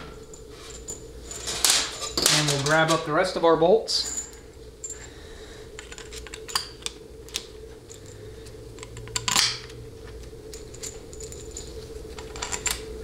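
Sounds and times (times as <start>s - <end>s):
steady hum: 0.0s - 13.0s
metal bolts clinking: 0.3s - 3.1s, 10.5s - 12.9s.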